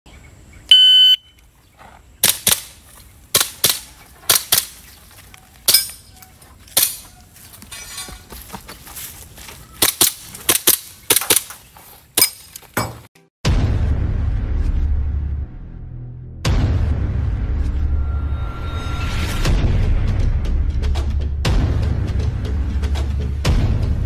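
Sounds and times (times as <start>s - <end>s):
shot timer beep: 0.7s - 1.4s.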